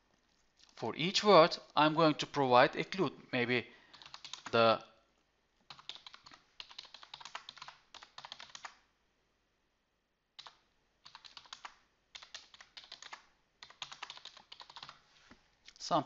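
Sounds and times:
computer keyboard typing: 0:03.9 - 0:04.6, 0:05.7 - 0:08.8, 0:10.4 - 0:15.0.

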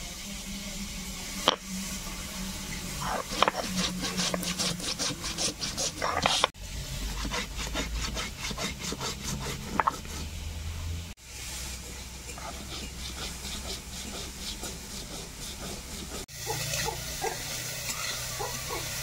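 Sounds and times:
stone roller grinding on slab: 0:01.4 - 0:01.6, 0:03.0 - 0:10.3, 0:12.2 - 0:17.4
metal spatula scraping wok: 0:01.4 - 0:10.4, 0:11.3 - 0:19.0.

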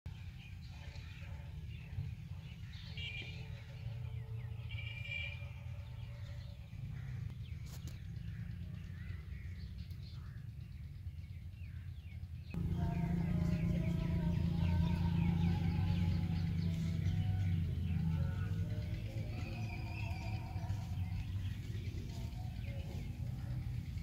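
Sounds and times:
birds chirping: 0:00.1 - 0:24.0
steady low rumble: 0:06.8 - 0:24.0
background music: 0:12.6 - 0:24.0.

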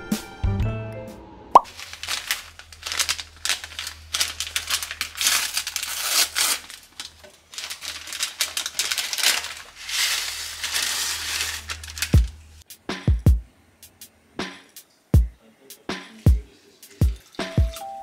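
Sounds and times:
crinkling and crunching: 0:01.6 - 0:12.6.

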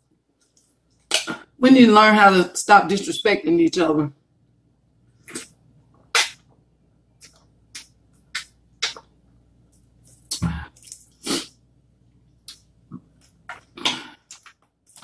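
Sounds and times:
person sipping and gulping: 0:12.5 - 0:15.0.

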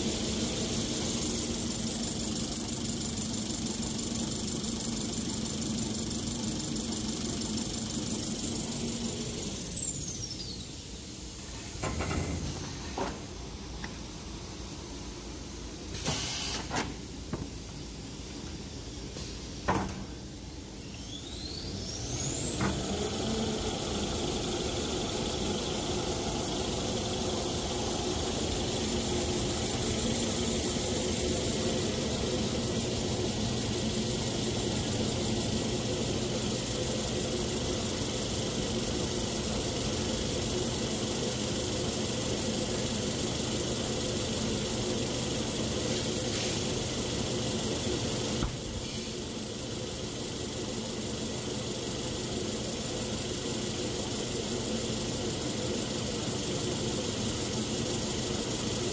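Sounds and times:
machine high whine: 0:00.0 - 0:12.7, 0:13.6 - 0:16.7, 0:20.4 - 0:58.9
mechanical hum: 0:00.0 - 0:58.9.

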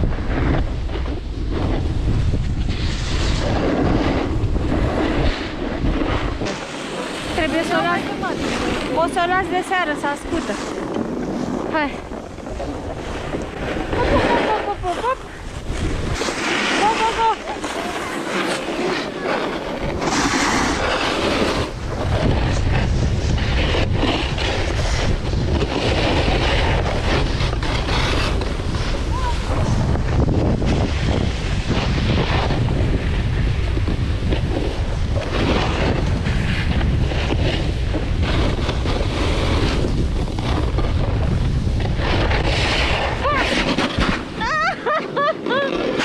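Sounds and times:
snowboard edge scraping snow: 0:00.0 - 0:46.0
wind rumble on microphone: 0:00.0 - 0:46.0.

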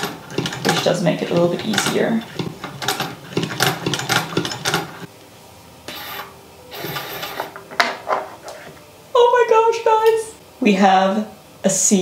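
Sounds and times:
sewing machine clicking: 0:00.0 - 0:05.1.

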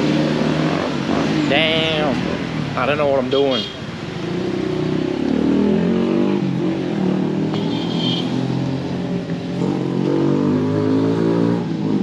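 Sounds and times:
vehicle engine revving: 0:04.1 - 0:12.0.

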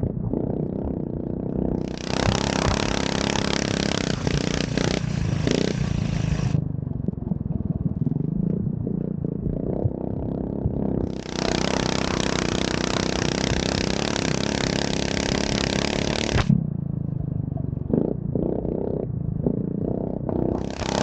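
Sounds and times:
kart engine running under load: 0:01.8 - 0:06.6, 0:11.0 - 0:16.6, 0:20.6 - 0:21.0.

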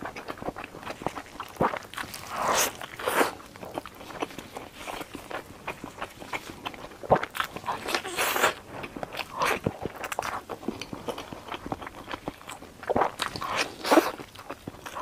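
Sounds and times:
chewing: 0:00.0 - 0:15.0.

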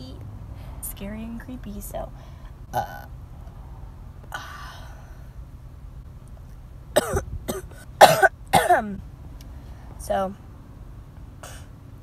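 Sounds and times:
low steady hum: 0:00.0 - 0:12.0
woman breathy exhale: 0:04.3 - 0:05.3.

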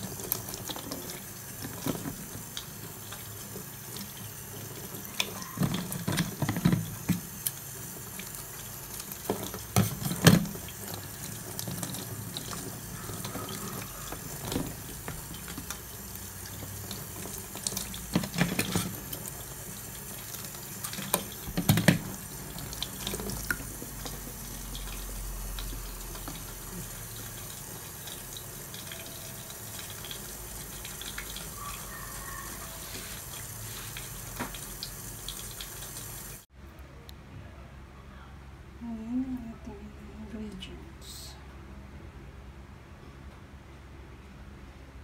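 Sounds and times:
water splashing in a tub: 0:00.0 - 0:36.5.

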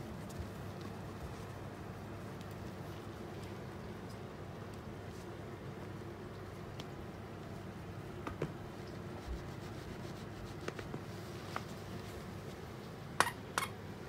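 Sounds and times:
low room hum: 0:00.0 - 0:14.0
faint rubbing and light taps: 0:08.3 - 0:12.9.

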